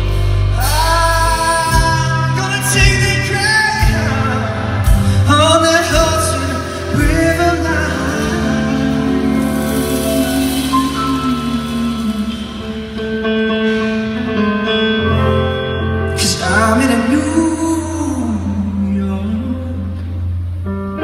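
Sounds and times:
rock band playing: 0.0 - 18.8
man singing into microphone: 0.5 - 13.1, 16.1 - 20.2.

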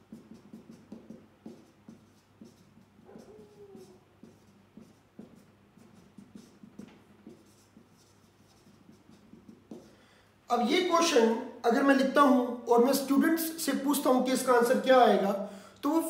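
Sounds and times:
marker writing on whiteboard: 0.0 - 10.0.

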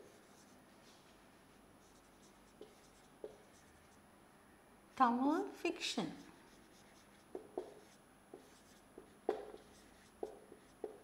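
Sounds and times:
marker writing on whiteboard: 0.0 - 0.8, 1.8 - 4.0, 6.2 - 11.0.

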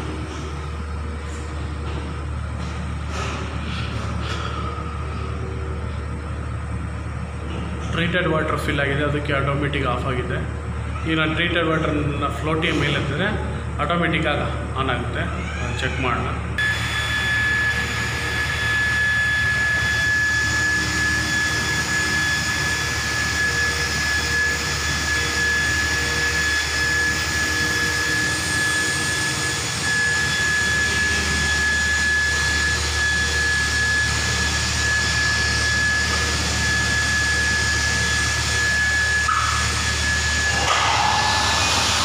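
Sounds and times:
high-pitched whine: 16.1 - 42.0
water pumps humming: 16.6 - 42.0.

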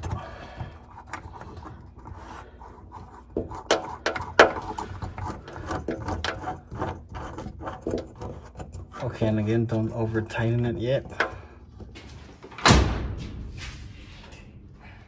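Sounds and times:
small parts rubbing and scraping: 0.0 - 12.3.

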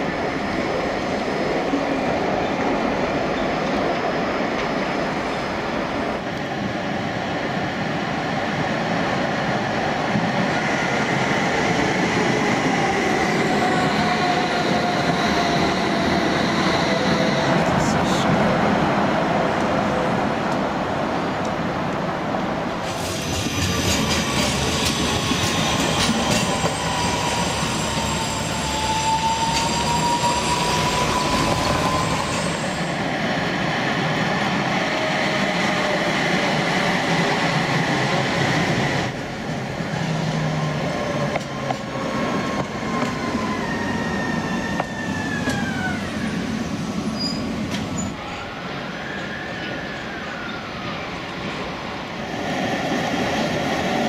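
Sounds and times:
wheel squeal: 24.3 - 32.9, 47.2 - 48.2.

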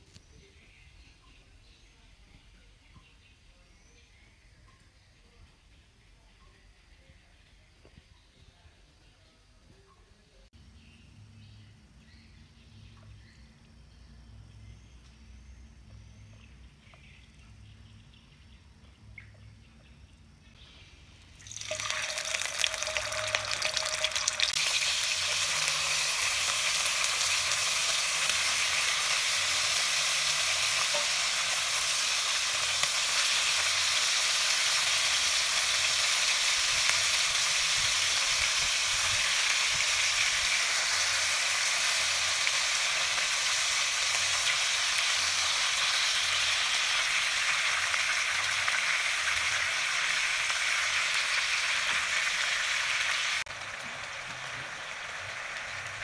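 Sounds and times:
chicken sizzling in hot oil: 20.6 - 56.0.

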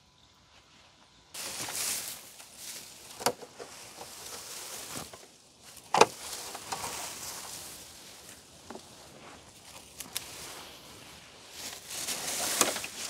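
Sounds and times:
dry grass rustling: 0.6 - 13.0.

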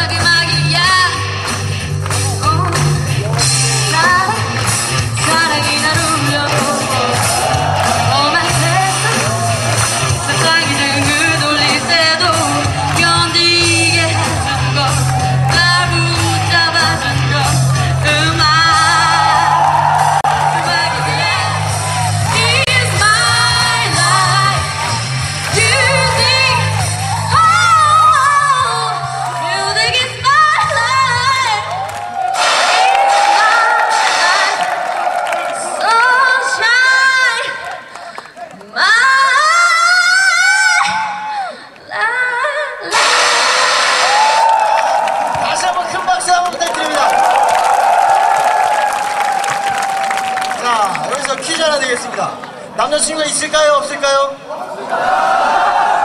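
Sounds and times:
woman singing into a microphone: 0.0 - 1.3, 5.2 - 7.3, 10.2 - 19.5, 22.3 - 24.8, 25.5 - 31.7, 35.8 - 37.9, 38.7 - 43.6
backing music with bass line: 0.0 - 35.2.

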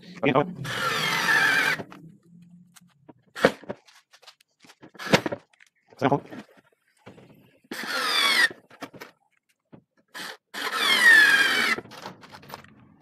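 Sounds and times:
cordless screwdriver whining: 0.6 - 2.0, 7.7 - 8.6, 10.1 - 11.8.

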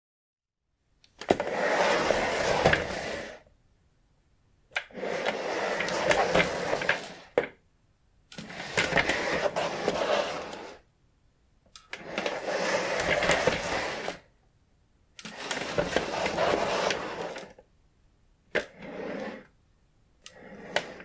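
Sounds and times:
chair wheels rolling: 1.3 - 3.4, 4.9 - 7.4, 8.4 - 10.8, 12.0 - 14.2, 15.2 - 17.6, 18.6 - 19.5, 20.3 - 21.0.

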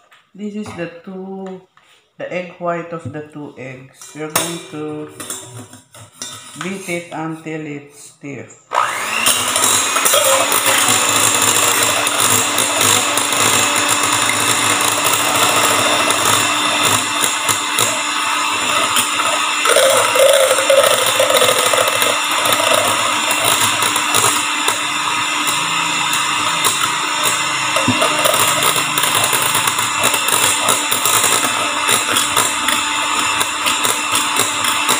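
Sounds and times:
electric hand mixer whipping: 8.7 - 34.9.

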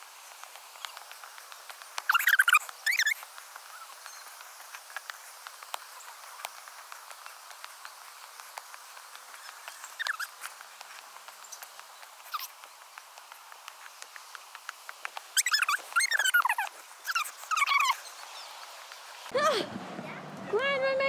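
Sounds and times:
faint hiss: 0.0 - 20.2
squeaky chirps: 2.1 - 4.3, 9.3 - 10.3, 12.2 - 12.6, 15.4 - 18.5.

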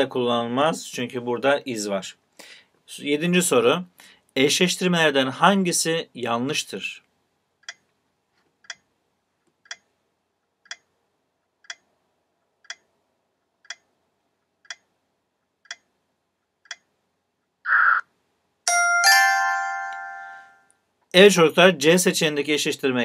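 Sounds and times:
timer ticking: 7.6 - 7.9, 8.6 - 8.9, 9.6 - 11.0, 11.6 - 14.0, 14.6 - 16.0, 16.6 - 17.0
ringing chime: 18.7 - 20.7.

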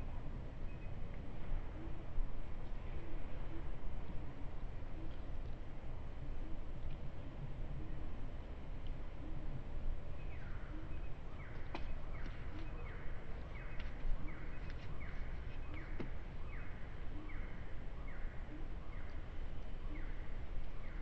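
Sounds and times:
faint clicks: 8.8 - 9.0.

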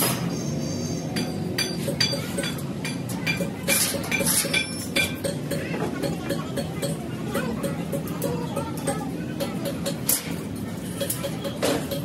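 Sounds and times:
tools clinking on steel sheet: 1.2 - 12.0.

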